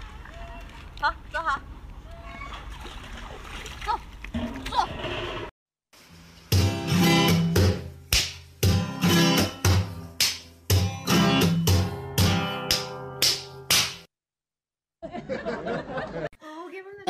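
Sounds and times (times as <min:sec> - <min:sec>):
strummed guitar chords: 0:06.5 - 0:08.0, 0:08.6 - 0:13.6.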